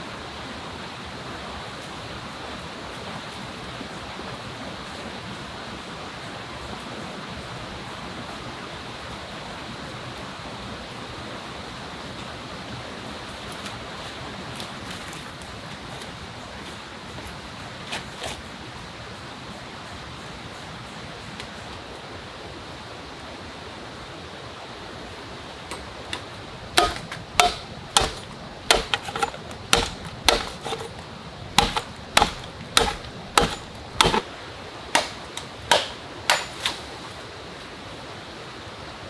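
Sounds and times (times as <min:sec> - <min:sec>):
machete chopping bamboo: 0:25.7 - 0:34.3, 0:34.9 - 0:36.8.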